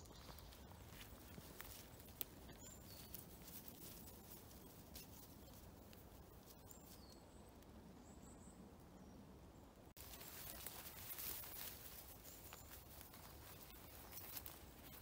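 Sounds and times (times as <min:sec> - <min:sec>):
faint bird chirps: 0:02.5 - 0:03.6, 0:06.4 - 0:15.0.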